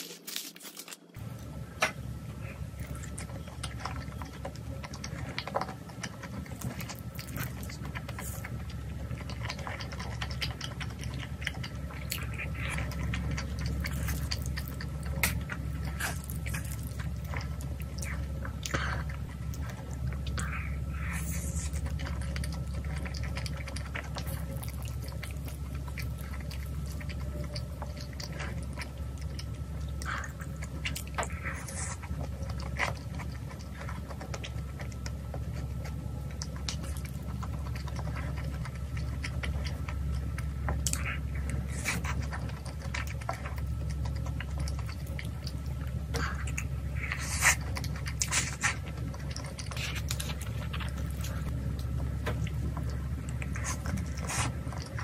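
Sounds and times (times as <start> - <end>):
close chewing: 0.0 - 55.0
steady low hum: 0.0 - 55.0.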